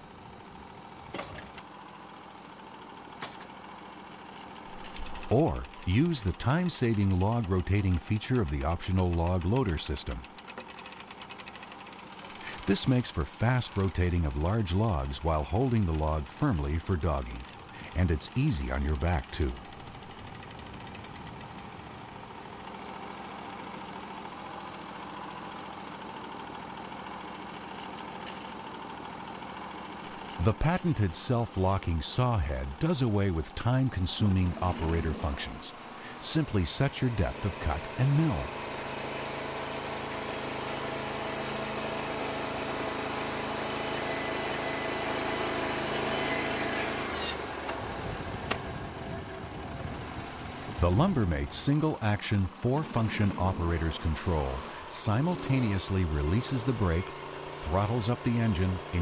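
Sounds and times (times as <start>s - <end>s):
gasoline engine running: 0.0s - 59.0s
band blade sawing log: 34.2s - 47.6s.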